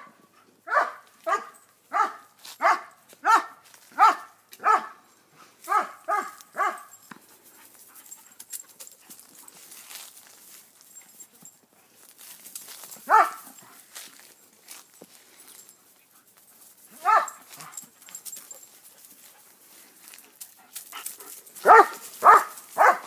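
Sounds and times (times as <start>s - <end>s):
dog barking: 0.0s - 5.0s, 5.7s - 7.0s, 13.0s - 13.6s, 17.0s - 17.8s, 21.6s - 23.0s.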